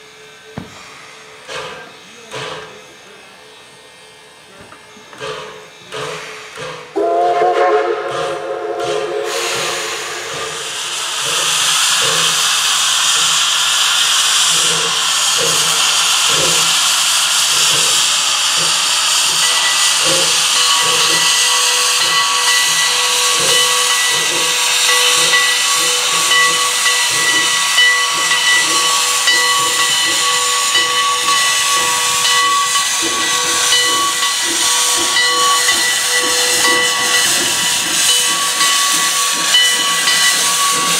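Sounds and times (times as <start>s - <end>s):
loud steam hiss: 0.0s - 40.9s
steam whistle blast: 7.0s - 11.1s
locomotive exhaust beats: 17.6s - 40.9s.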